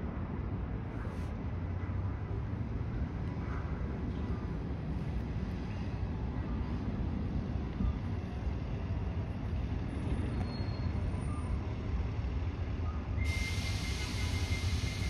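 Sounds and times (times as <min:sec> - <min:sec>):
distant train rumble: 0:00.0 - 0:15.0
hiss with high tone: 0:13.2 - 0:15.0.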